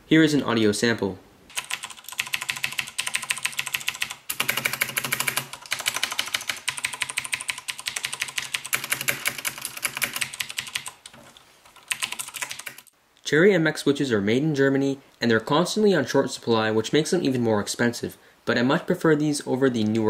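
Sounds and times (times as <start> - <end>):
clicky mechanical keyboard typing: 1.5 - 12.9.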